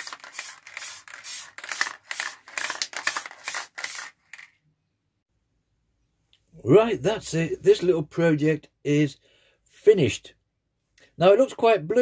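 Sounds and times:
aerosol spray bursts: 0.0s - 4.2s.

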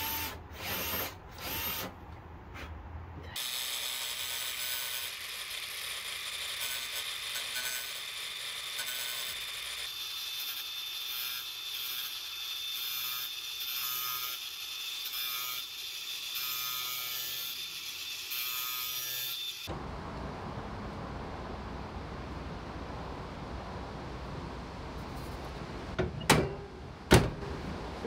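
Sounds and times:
low even rumble: 19.7s - 28.0s.

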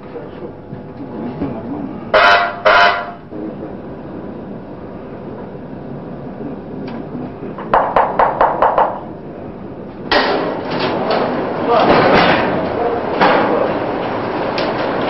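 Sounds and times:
signal buzzer blasts: 2.1s - 3.2s
sharp knocks: 7.6s - 9.0s.

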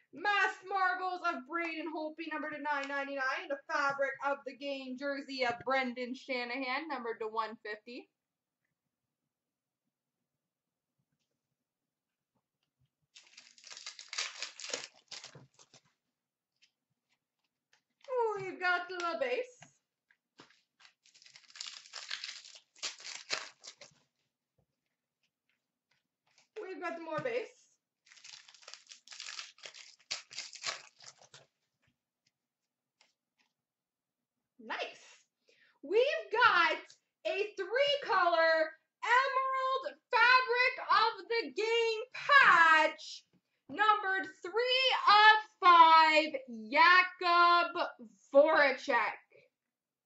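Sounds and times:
cards rustling: 13.1s - 16.0s, 20.4s - 24.2s, 28.0s - 31.7s
plastic wrapper crinkling and tearing: 13.1s - 16.0s, 20.3s - 24.2s, 28.0s - 31.7s.

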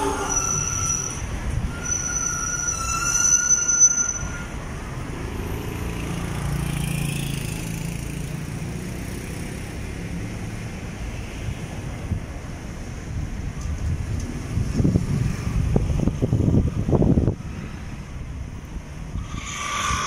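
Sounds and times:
high-pitched whine: 0.0s - 4.6s
hum of passing vehicles: 4.5s - 20.0s.

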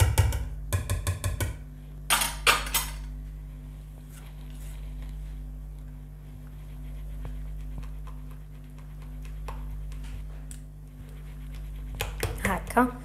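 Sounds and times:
steady low hum: 0.0s - 13.0s
spatula stirring thick curd: 4.0s - 10.3s.

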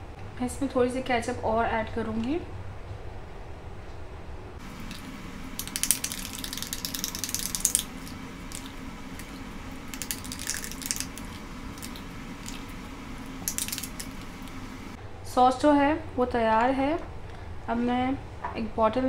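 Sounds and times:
thick sauce squelching: 4.6s - 15.0s.

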